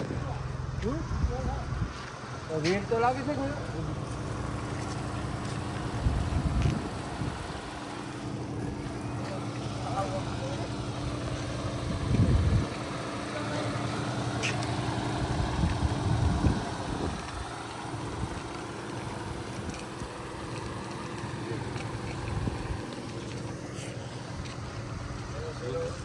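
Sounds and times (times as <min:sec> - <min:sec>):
boat engine idling: 0:00.0 - 0:26.0
wind buffeting microphone: 0:05.8 - 0:07.8, 0:11.1 - 0:13.1, 0:15.2 - 0:20.2, 0:22.2 - 0:22.9.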